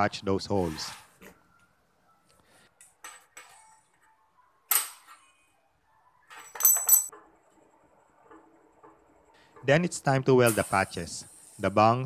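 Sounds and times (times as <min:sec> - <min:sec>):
steel pieces clinking on tank: 0:06.4 - 0:07.1.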